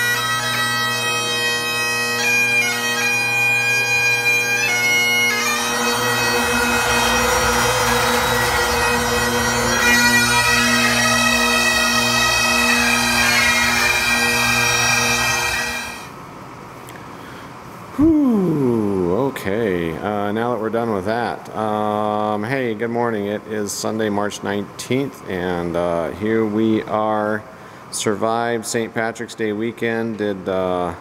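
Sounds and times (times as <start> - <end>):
bagpipes playing a tune: 0.0 - 16.2.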